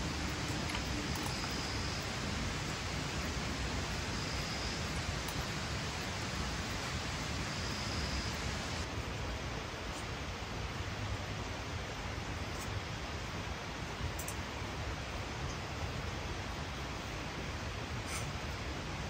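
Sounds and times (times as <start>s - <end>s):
heavy rain falling: 0.0s - 12.4s.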